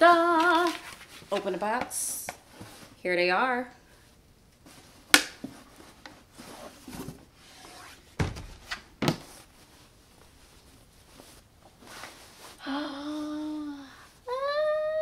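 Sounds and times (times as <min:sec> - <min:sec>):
knock of shoe box handled: 0:08.2 - 0:09.2
rustling of cloth bag: 0:09.3 - 0:12.6.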